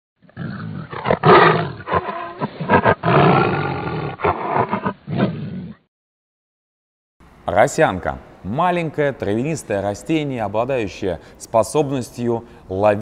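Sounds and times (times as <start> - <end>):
animal roars and growls: 0.2 - 5.9.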